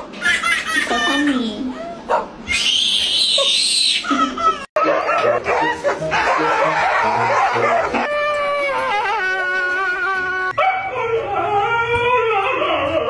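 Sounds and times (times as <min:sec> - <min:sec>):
laughter: 0:04.0 - 0:07.7
dog howling: 0:04.8 - 0:13.0.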